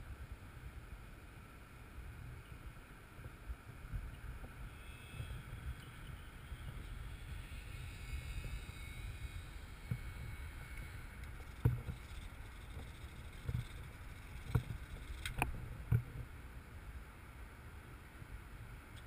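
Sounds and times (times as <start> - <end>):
wind buffeting microphone: 3.5 - 16.4.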